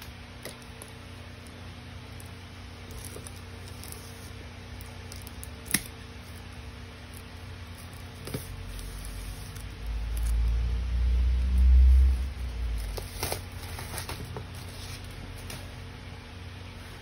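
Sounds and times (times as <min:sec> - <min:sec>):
plastic wrap crinkling: 0:12.7 - 0:15.7.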